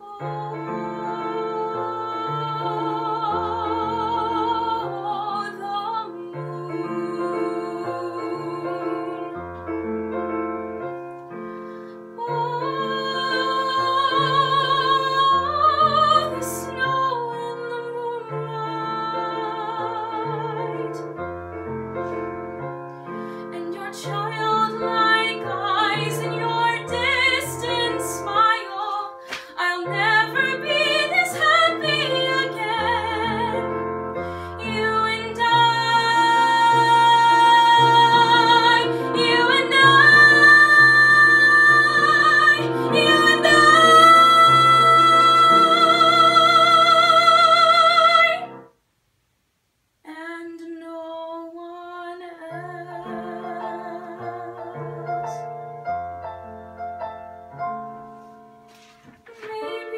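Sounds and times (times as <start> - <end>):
woman singing: 0.0 - 9.6, 12.2 - 21.2, 23.4 - 48.7, 50.1 - 55.7, 59.3 - 59.9
digital piano accompaniment: 0.0 - 47.3, 52.6 - 59.9.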